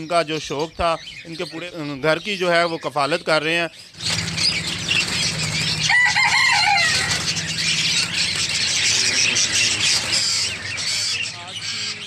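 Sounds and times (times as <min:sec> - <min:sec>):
caged birds chirping and squawking: 0:00.0 - 0:12.0
wings fluttering: 0:03.9 - 0:11.7.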